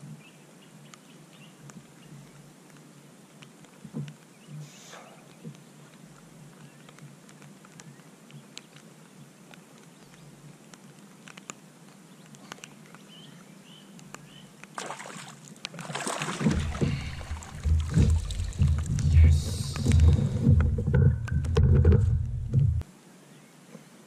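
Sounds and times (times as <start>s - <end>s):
faint clicks: 0.8s - 14.8s, 16.8s - 22.7s
fish splashing and thrashing water: 14.7s - 22.8s.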